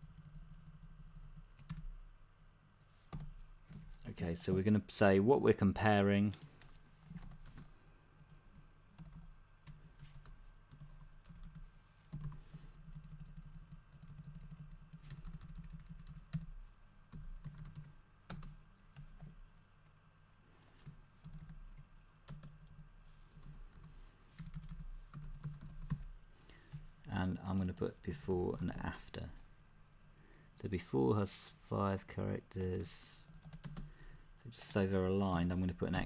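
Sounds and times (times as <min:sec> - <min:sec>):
typing on computer keyboard: 0:00.0 - 0:01.9, 0:09.0 - 0:16.5, 0:17.1 - 0:19.3, 0:21.2 - 0:22.8, 0:23.4 - 0:26.0, 0:32.7 - 0:33.9.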